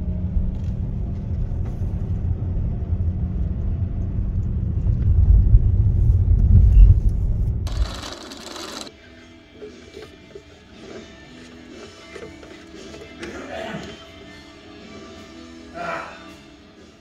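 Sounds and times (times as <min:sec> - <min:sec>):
car rumble from inside cabin: 0:00.0 - 0:07.8.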